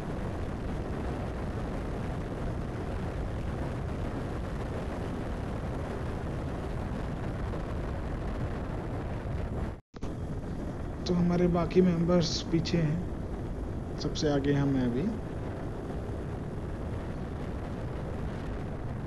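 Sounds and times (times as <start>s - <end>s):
road noise: 0.0s - 19.0s
wind rumble on microphone: 0.0s - 19.0s.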